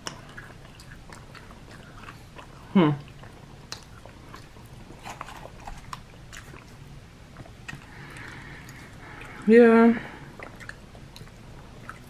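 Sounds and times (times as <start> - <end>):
faint low hum: 0.0 - 12.0
soft chewing: 0.0 - 12.0.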